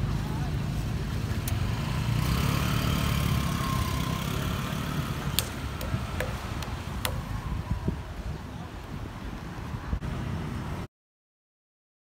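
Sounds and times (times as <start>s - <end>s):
motorbike engine passing: 1.6s - 7.3s.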